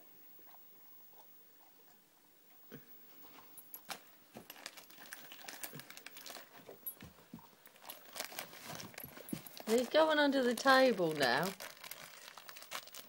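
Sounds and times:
crinkly packaging rustling: 3.7s - 13.0s.

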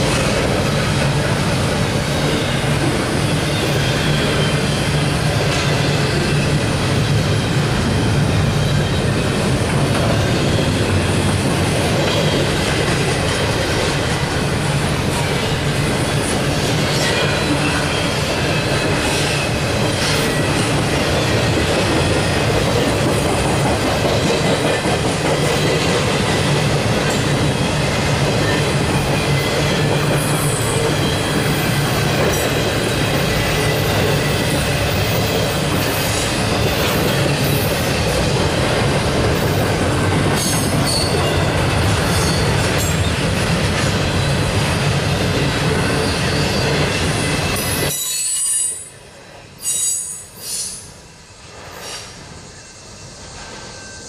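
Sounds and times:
freight train wheels rumbling: 0.0s - 54.0s
high wheel squeals: 2.0s - 6.6s, 45.8s - 48.9s, 49.6s - 50.9s.

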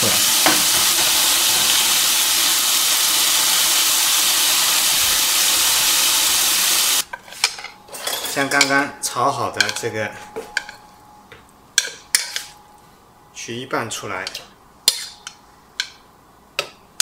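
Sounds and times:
vegetables sizzling in frying pan: 0.0s - 7.0s.

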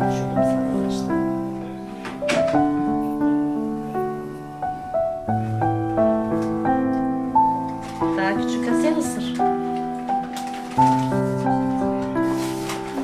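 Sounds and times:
slow piano melody: 0.0s - 13.0s.

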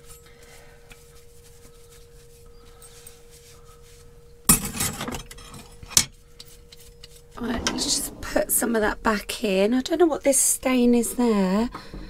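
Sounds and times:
cutlery clattering into a tray: 4.5s - 6.1s.

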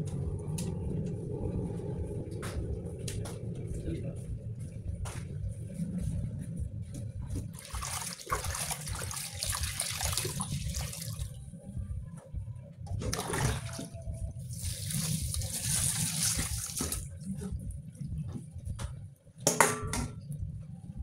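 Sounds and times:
water splashing into steel sink: 7.6s - 11.3s, 14.6s - 17.1s.

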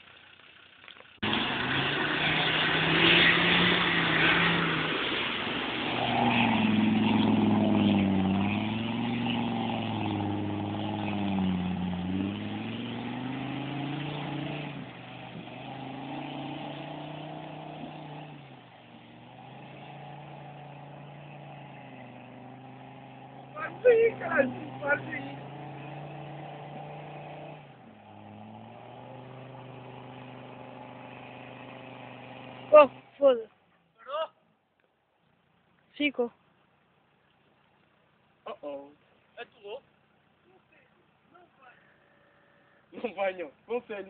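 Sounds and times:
vehicle engine revving: 0.3s - 33.4s.

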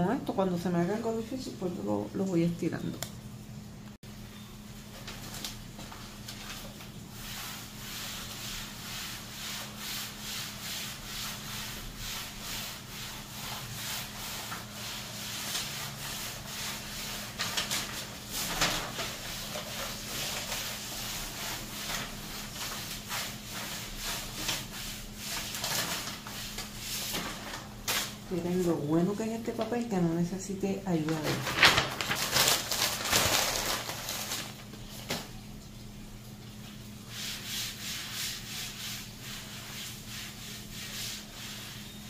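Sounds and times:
paper rustling: 4.8s - 7.5s, 14.2s - 28.2s, 30.9s - 35.3s.

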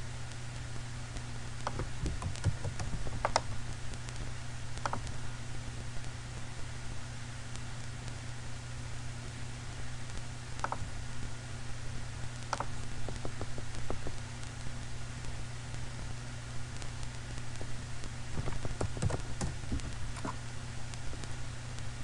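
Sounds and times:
low computer hum: 0.0s - 22.0s
keyboard keystrokes: 1.6s - 3.6s, 4.8s - 5.0s, 18.4s - 20.4s
mouse clicks: 1.6s - 3.6s, 4.8s - 5.1s, 10.6s - 10.8s, 12.5s - 14.1s.

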